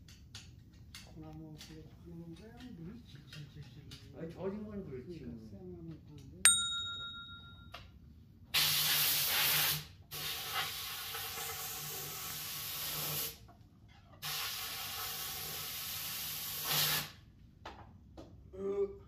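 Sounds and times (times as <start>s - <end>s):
low steady hum: 6.5s - 7.8s
rushing hiss bursts: 8.6s - 13.4s, 14.2s - 17.2s.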